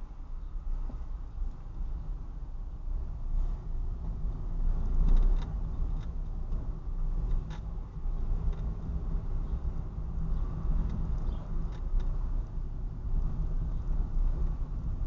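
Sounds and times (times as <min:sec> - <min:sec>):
car engine rumble: 0:00.0 - 0:15.0
tyres on road: 0:00.0 - 0:15.0.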